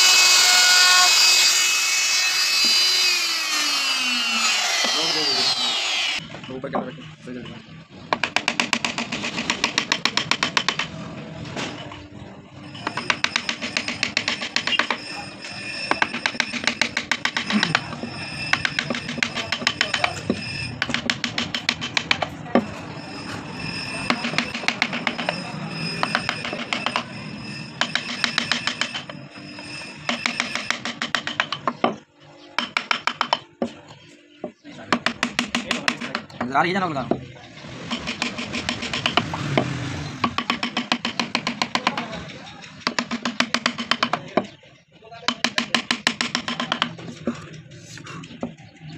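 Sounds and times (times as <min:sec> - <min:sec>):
gouge carving wood: 0:12.8 - 0:15.2, 0:15.8 - 0:22.7, 0:23.7 - 0:27.1, 0:27.8 - 0:29.2, 0:30.0 - 0:31.8, 0:32.6 - 0:33.4, 0:37.8 - 0:42.2, 0:42.8 - 0:44.2, 0:45.3 - 0:47.1.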